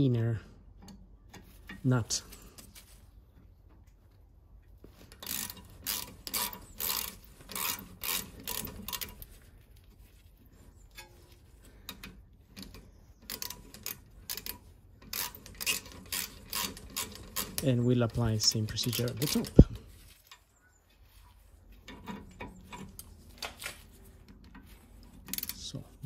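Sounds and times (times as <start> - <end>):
socket ratchet clicking: 12.6 - 17.6.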